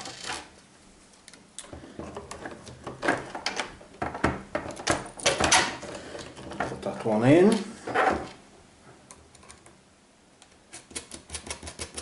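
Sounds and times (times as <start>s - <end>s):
plastic parts clicking and knocking: 1.3s - 7.0s.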